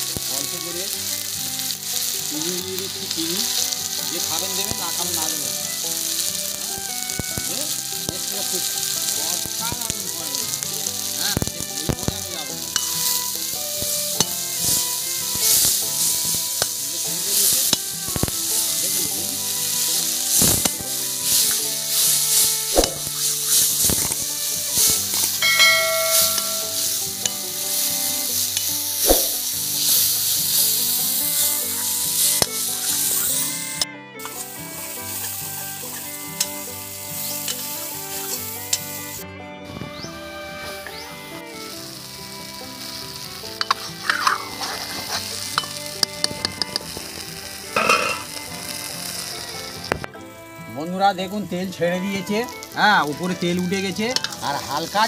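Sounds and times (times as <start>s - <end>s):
paste sizzling in oil: 0.0s - 55.0s
spatula scraping a pan: 12.5s - 38.9s, 43.4s - 47.1s, 47.7s - 49.3s.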